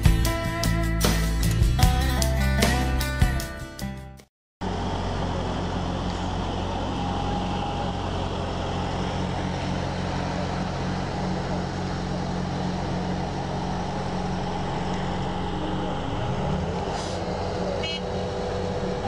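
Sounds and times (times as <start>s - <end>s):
road roller diesel engine drone: 4.6s - 19.0s.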